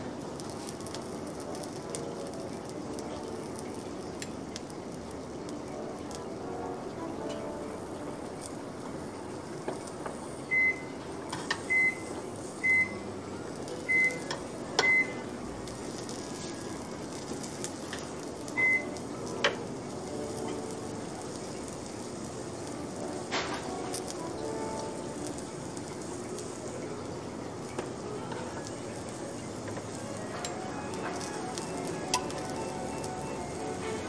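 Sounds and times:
low steady hiss: 0.0 - 34.0
metal tongs clicking on grill: 11.3 - 11.9, 13.9 - 16.2, 19.4 - 19.6, 23.3 - 24.2, 29.7 - 33.2.

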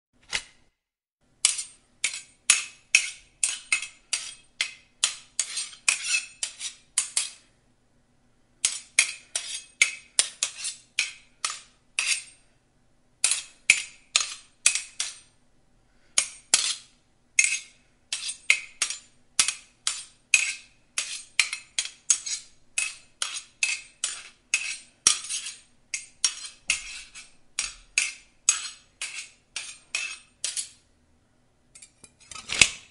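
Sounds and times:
swords clanging: 1.4 - 7.5, 8.6 - 12.4, 16.2 - 30.8.

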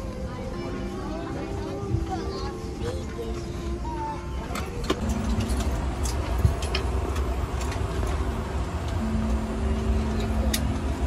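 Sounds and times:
airliner cabin rumble: 0.1 - 11.0
steady hum: 4.8 - 11.0.

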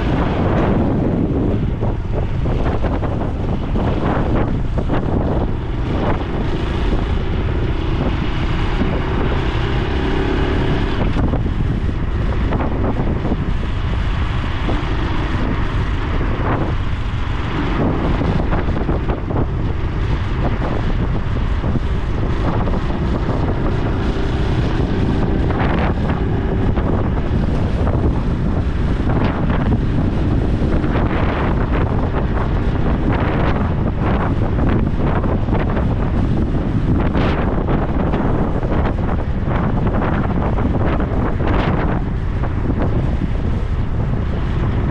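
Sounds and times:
motorcycle engine running: 0.0 - 44.9
wind buffeting microphone: 0.0 - 44.9.

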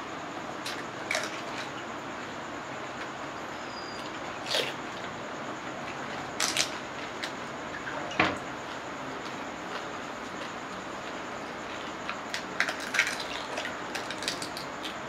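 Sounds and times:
crisp shells cracking: 12.4 - 14.9.

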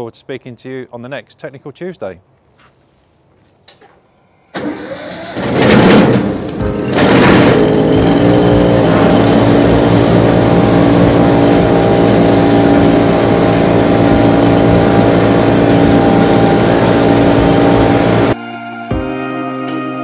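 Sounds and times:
wood chipper engine running: 4.6 - 18.4.

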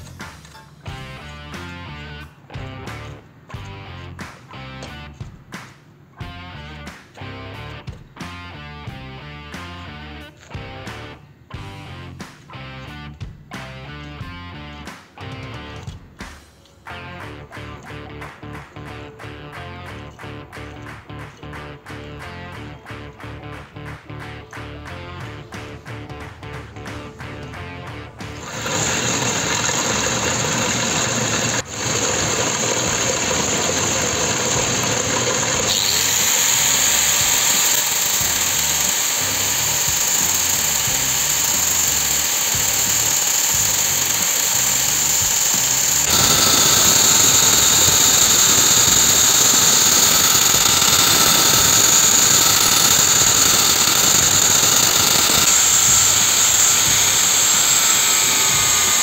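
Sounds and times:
angle grinder grinding steel: 28.2 - 59.0.

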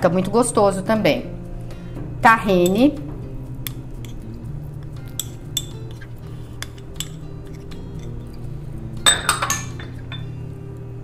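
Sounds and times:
faint background music: 0.0 - 11.0
spoon clinking against bowls: 2.6 - 2.9, 4.9 - 8.4, 9.0 - 10.4
metal spoon scraping ceramic bowl: 3.9 - 8.4.

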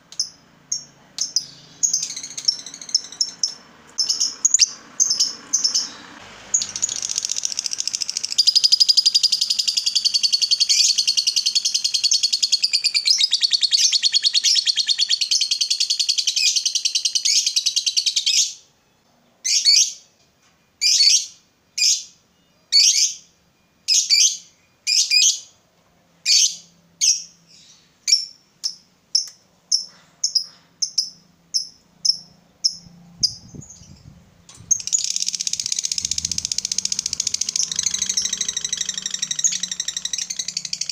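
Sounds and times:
lovebird chattering: 0.2 - 18.2, 34.7 - 40.9.

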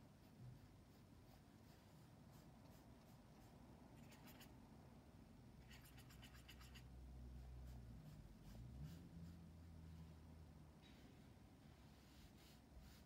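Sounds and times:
paintbrush scratching: 0.1 - 4.5, 7.7 - 9.7, 11.9 - 13.0.

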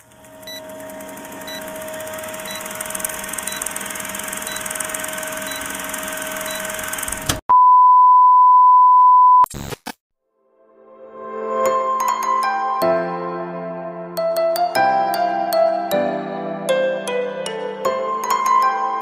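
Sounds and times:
film projector whirring: 0.0 - 7.4.

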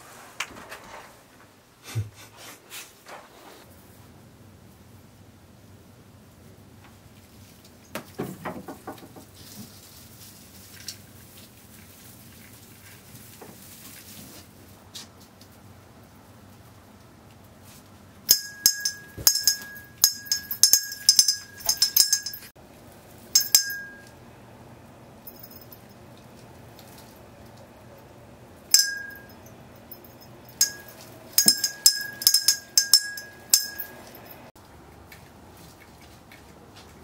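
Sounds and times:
small bell ringing: 18.3 - 22.6, 23.3 - 24.2, 25.2 - 26.0, 28.7 - 34.5.

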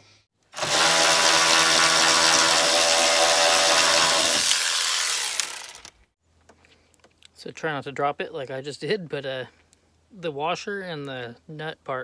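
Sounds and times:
powered ratchet running: 0.6 - 6.0.

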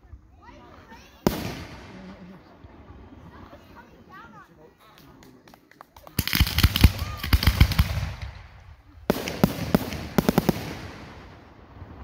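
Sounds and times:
fireworks bangs: 0.7 - 3.8, 6.0 - 12.0.

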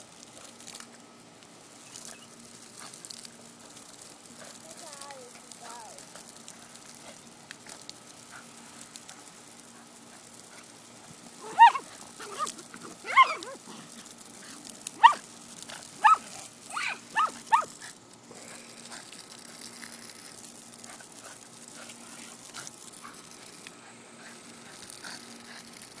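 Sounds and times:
lawn sprinkler spray hissing: 0.0 - 26.0
dog yipping and barking: 11.4 - 13.6, 15.0 - 15.2, 16.0 - 17.7.

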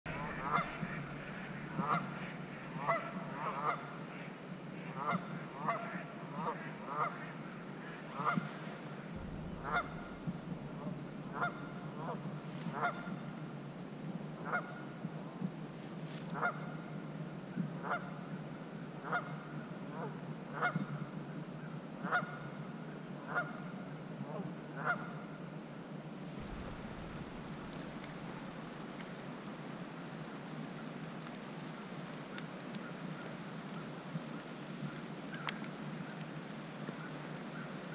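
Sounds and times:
geese honking: 0.1 - 7.3, 9.2 - 13.3, 26.4 - 29.1.

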